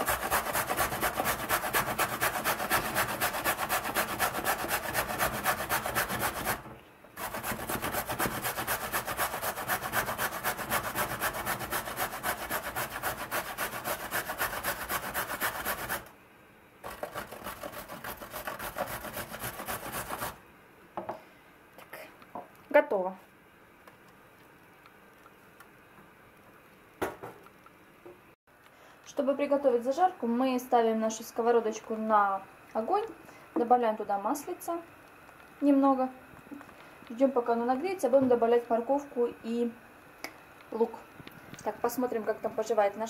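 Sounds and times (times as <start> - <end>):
carrot grated on metal grater: 0.0 - 16.1, 16.8 - 20.4.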